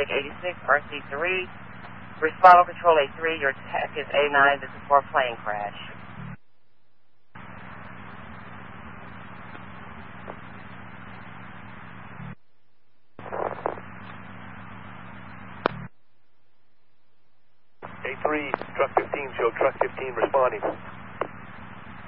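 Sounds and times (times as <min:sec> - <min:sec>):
voice over radio: 0:00.0 - 0:01.5, 0:02.2 - 0:06.0, 0:17.8 - 0:20.9
radio static hiss: 0:00.0 - 0:06.4, 0:07.3 - 0:12.4, 0:13.2 - 0:15.9, 0:17.8 - 0:22.0
steady low hum: 0:00.0 - 0:22.0
sharp radio click: 0:17.8 - 0:21.4.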